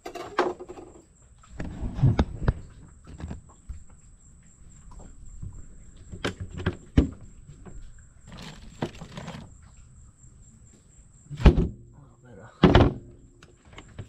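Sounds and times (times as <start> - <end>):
plastic cooler lid clunking: 0.0 - 1.0
hand rummaging through ice water: 6.0 - 9.7.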